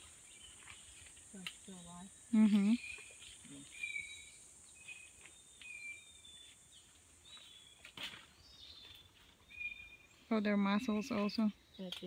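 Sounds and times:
high insect drone: 0:00.0 - 0:07.4.

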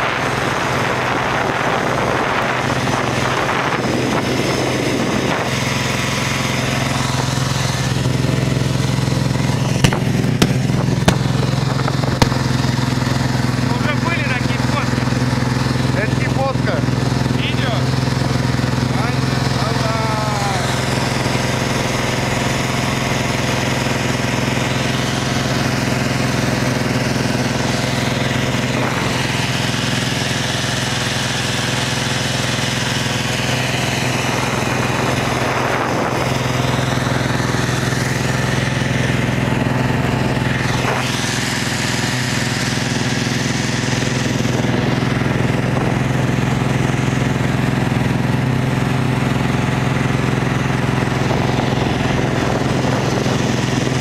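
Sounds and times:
snowmobile engine droning: 0:00.0 - 0:54.0.

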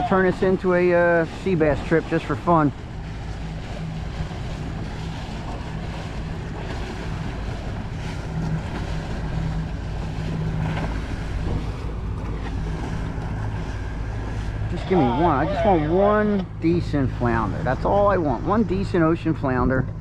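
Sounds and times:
outboard motor humming: 0:00.0 - 0:20.0
waves against boat hull: 0:00.0 - 0:20.0
wind buffeting microphone: 0:00.0 - 0:20.0.

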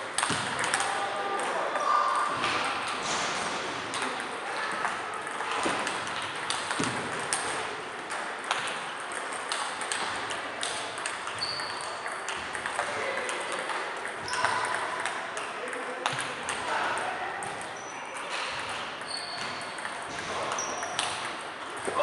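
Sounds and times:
table tennis balls clicking: 0:00.0 - 0:03.1, 0:03.8 - 0:22.0.

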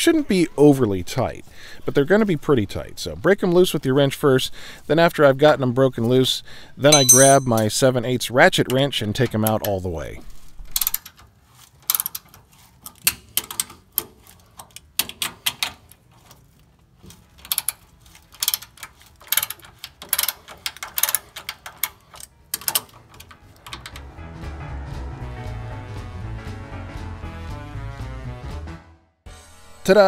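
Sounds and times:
ratcheting wrench clicking: 0:11.8 - 0:16.4, 0:17.1 - 0:24.0
music: 0:21.7 - 0:30.0.

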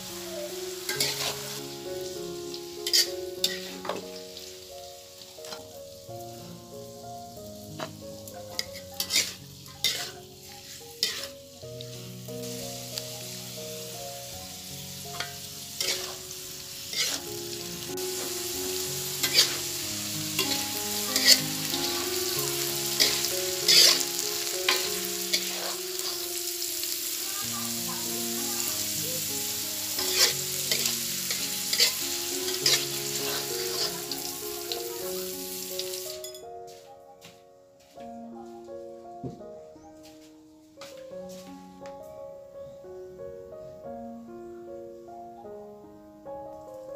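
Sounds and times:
food sizzling in a wok: 0:00.0 - 0:36.8
soft piano music: 0:00.0 - 0:46.9
metal spatula scraping a pan: 0:00.9 - 0:01.6, 0:02.8 - 0:04.0, 0:08.6 - 0:11.5, 0:15.1 - 0:17.4, 0:19.2 - 0:26.2, 0:30.0 - 0:34.4.

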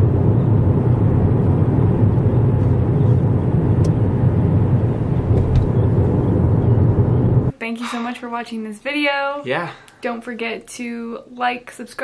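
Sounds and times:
vehicle rumble from inside cabin: 0:00.0 - 0:07.5.

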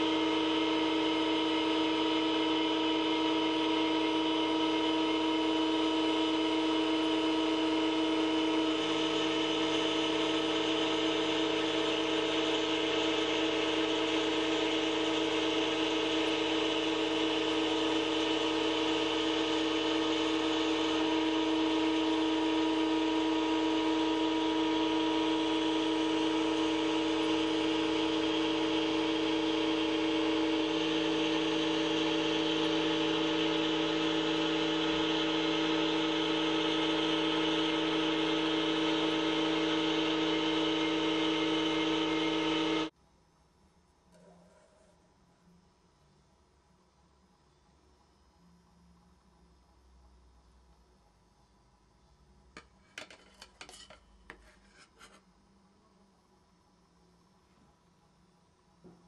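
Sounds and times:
milling machine spindle humming: 0:00.0 - 0:42.9.

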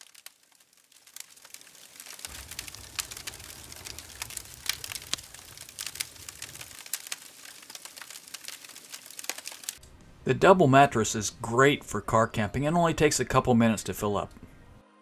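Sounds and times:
campfire crackling and popping: 0:00.0 - 0:14.5
soft low rumble: 0:02.3 - 0:06.8.

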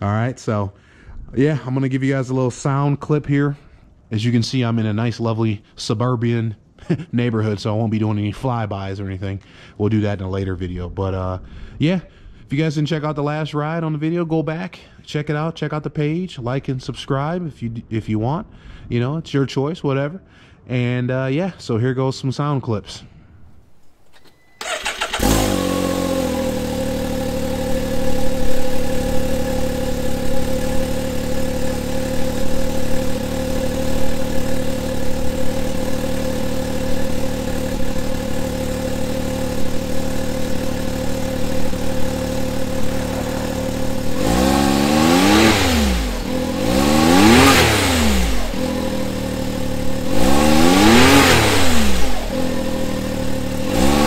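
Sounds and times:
engine idling: 0:24.6 - 0:54.0
engine revving: 0:24.6 - 0:54.0.

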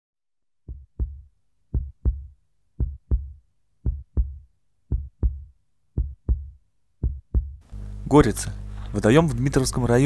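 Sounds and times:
heartbeat thumps: 0:00.7 - 0:07.6.

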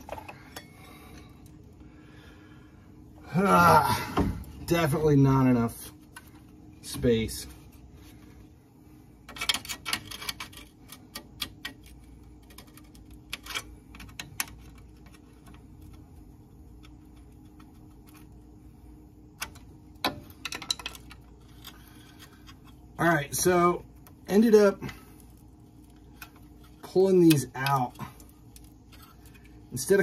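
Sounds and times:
faint steady hum: 0:00.0 - 0:30.0
hand tool and metal parts clicking: 0:09.2 - 0:16.1, 0:19.4 - 0:22.8, 0:23.4 - 0:30.0.

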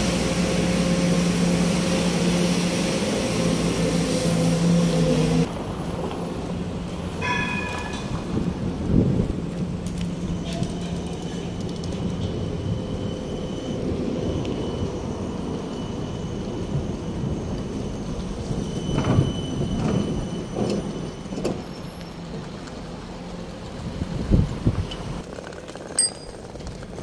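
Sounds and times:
brief high squeal: 0:18.0 - 0:21.8.

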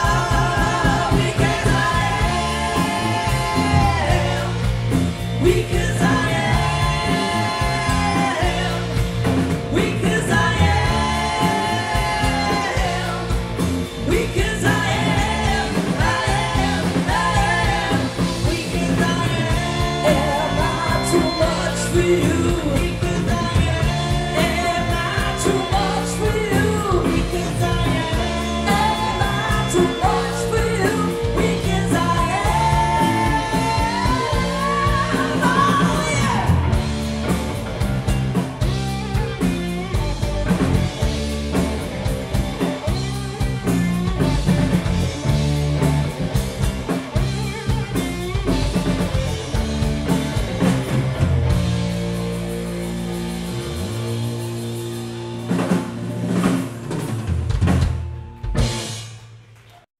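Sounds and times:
woman singing lead: 0:00.0 - 0:36.9
live rock band playing: 0:00.0 - 0:59.7.

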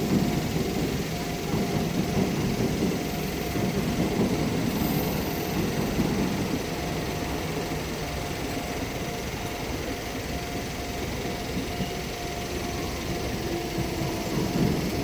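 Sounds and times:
faint crossing warning bell: 0:00.0 - 0:15.0
train wheels rumbling on rails: 0:00.0 - 0:15.0.

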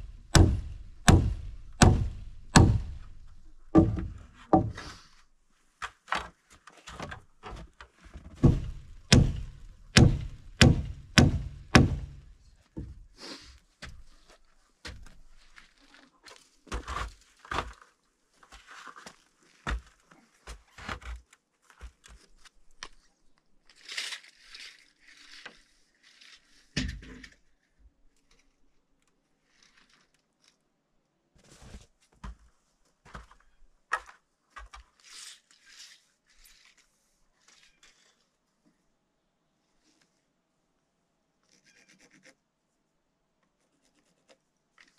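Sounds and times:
tools knocking on timber: 0:03.8 - 0:04.8, 0:08.4 - 0:12.2.

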